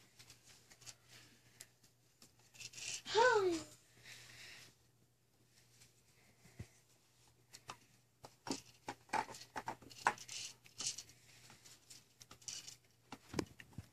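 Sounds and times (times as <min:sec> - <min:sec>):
plastic toys clicking and rattling: 0:02.2 - 0:03.2, 0:07.6 - 0:13.9.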